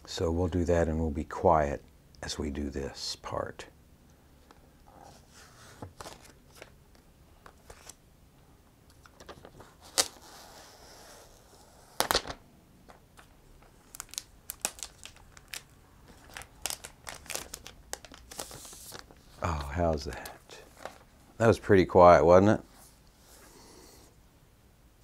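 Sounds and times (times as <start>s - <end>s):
plastic film crinkling: 11.9s - 21.1s.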